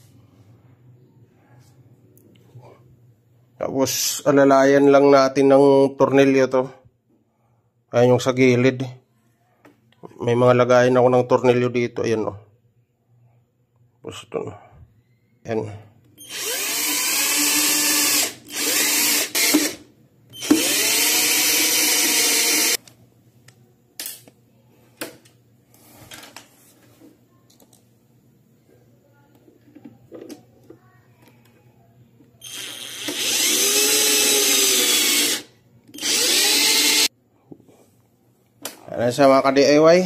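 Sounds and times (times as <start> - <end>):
cordless drill driving screws: 16.2 - 19.8, 20.4 - 22.8, 32.4 - 37.1
small clicks and handling noises: 27.4 - 27.9.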